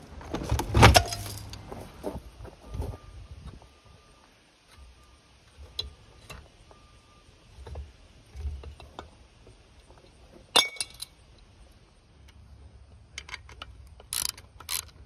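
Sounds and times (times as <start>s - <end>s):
metal tools clinking on metal: 10.5s - 11.2s.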